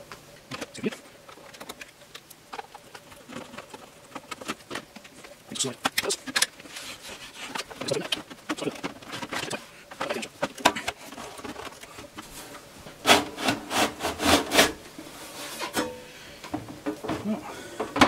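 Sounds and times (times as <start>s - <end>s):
cover rubbing and scraping: 5.9s - 15.9s
loud knocks and scrapes: 9.0s - 15.9s.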